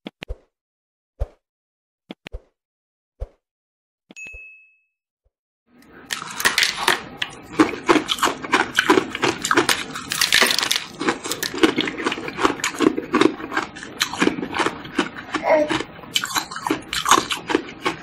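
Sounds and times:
ice crunching in mouth: 0:06.1 - 0:18.0.

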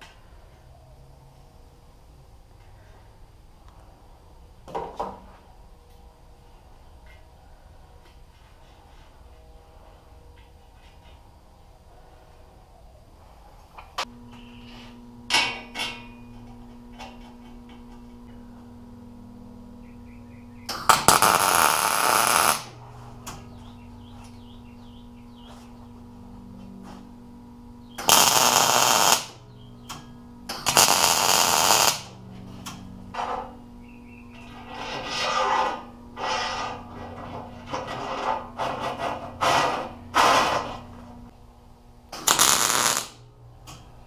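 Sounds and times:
welder low hum: 0:12.6 - 0:43.8
welding arc crackling: 0:20.7 - 0:22.8, 0:27.9 - 0:32.8, 0:42.1 - 0:43.2.

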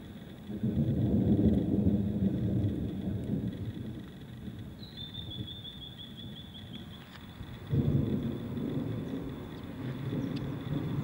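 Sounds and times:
rolling thunder: 0:00.5 - 0:04.0, 0:07.6 - 0:11.0.

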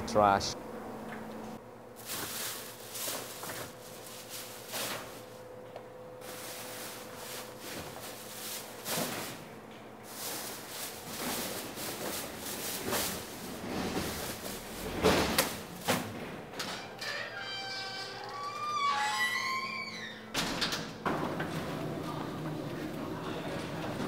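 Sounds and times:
trash bags thudding into bin: 0:02.0 - 0:05.3, 0:06.2 - 0:09.4, 0:10.1 - 0:16.3
plastic trash bags rustling: 0:02.0 - 0:05.5, 0:06.2 - 0:16.1.

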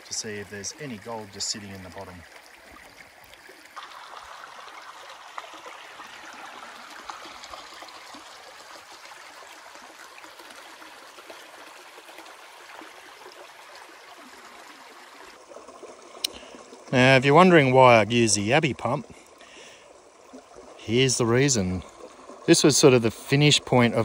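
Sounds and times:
creek water trickling over rock: 0:00.0 - 0:24.0.

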